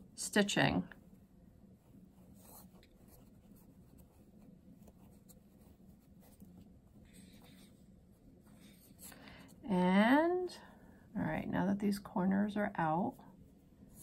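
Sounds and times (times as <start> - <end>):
pencil scratching fabric: 1.7 - 9.2.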